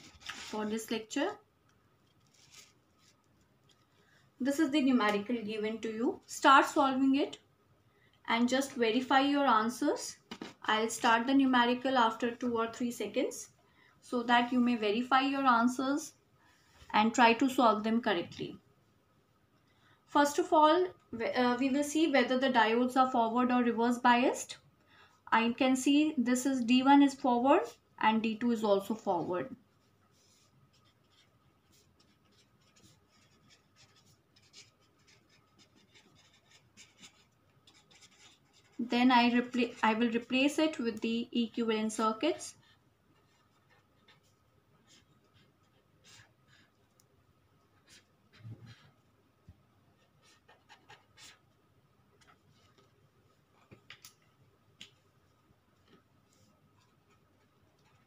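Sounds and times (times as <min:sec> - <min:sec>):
marker pen writing on paper: 0:30.1 - 0:40.7, 0:42.7 - 0:47.0, 0:47.7 - 0:49.0, 0:50.0 - 0:51.6.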